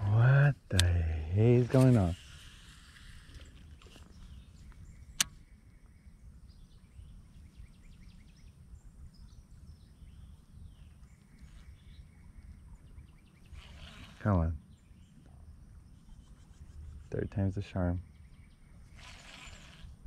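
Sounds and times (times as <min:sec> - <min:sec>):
sharp click: 0:00.7 - 0:01.0, 0:05.2 - 0:05.4.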